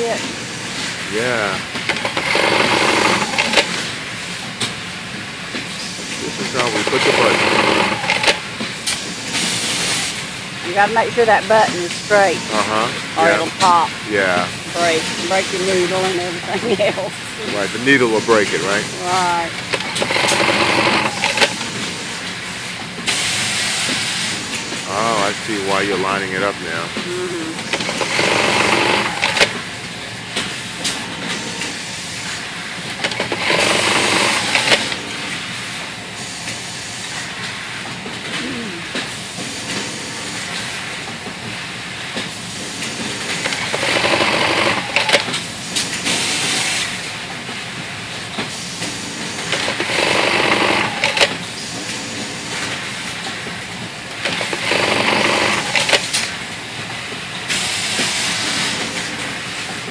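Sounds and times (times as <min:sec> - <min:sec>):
background machine noise: 0:00.0 - 0:59.9
sewing machine stitching: 0:01.9 - 0:03.7, 0:06.6 - 0:08.4, 0:19.7 - 0:21.6, 0:27.7 - 0:29.6, 0:33.0 - 0:35.0, 0:43.5 - 0:45.2, 0:49.6 - 0:51.3, 0:54.3 - 0:56.1.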